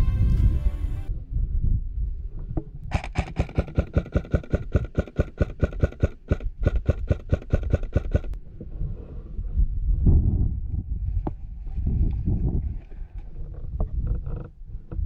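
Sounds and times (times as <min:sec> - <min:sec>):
airsoft rifle rapid firing: 0:02.9 - 0:08.4.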